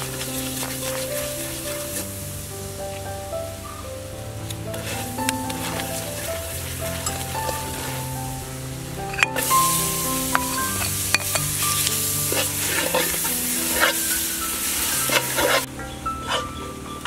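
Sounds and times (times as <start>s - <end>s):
food sizzling in pot: 0.0s - 3.1s, 4.7s - 15.7s
metal ladle scraping and clinking: 6.9s - 7.9s, 9.0s - 13.2s.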